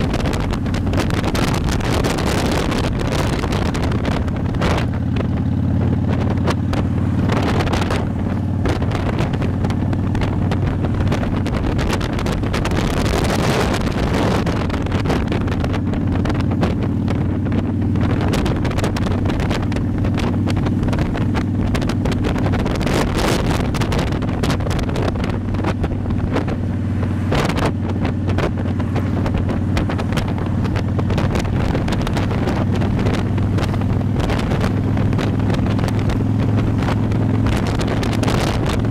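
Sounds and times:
motorcycle engine running: 0:00.0 - 0:38.9
wind buffeting microphone: 0:00.0 - 0:38.9.

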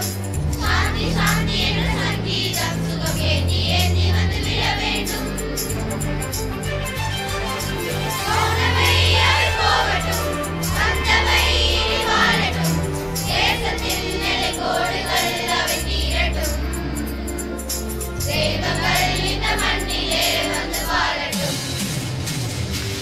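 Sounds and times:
girls' choir singing: 0:00.0 - 0:06.2, 0:07.9 - 0:21.8
held low accompaniment notes: 0:00.0 - 0:21.6.

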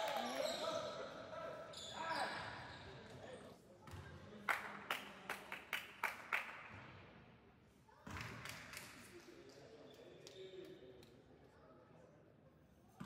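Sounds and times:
sharp smacks echoing in gym hall: 0:08.0 - 0:09.2.

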